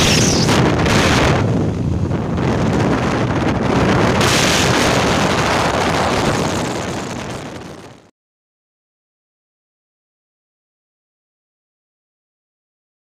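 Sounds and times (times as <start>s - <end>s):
wind buffeting microphone: 0.0s - 8.1s.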